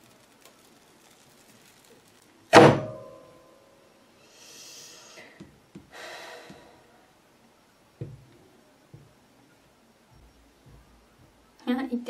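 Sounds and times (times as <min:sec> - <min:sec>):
soft rustle: 0:00.0 - 0:02.5.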